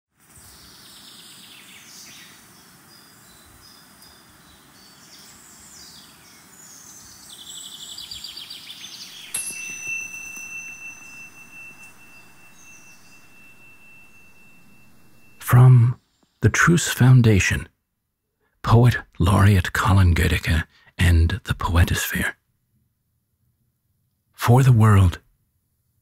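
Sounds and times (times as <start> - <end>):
faint hiss: 0.2 - 16.8
birds chirping and trilling: 0.5 - 15.4
high ringing tone: 9.1 - 15.7.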